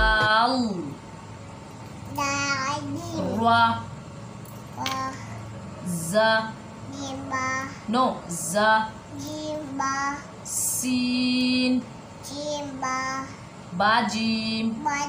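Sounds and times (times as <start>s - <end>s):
child chanting letter names: 2.1s - 3.4s, 4.8s - 5.4s, 6.9s - 7.9s, 9.1s - 10.4s, 12.2s - 13.4s, 14.7s - 15.0s.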